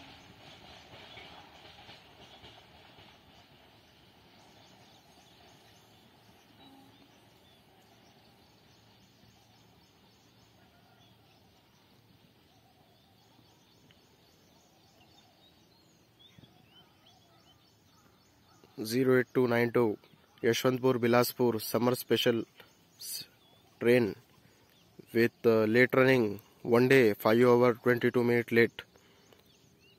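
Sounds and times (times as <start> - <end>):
passing train: 0.0 - 18.6
faint bird calls: 4.4 - 20.8.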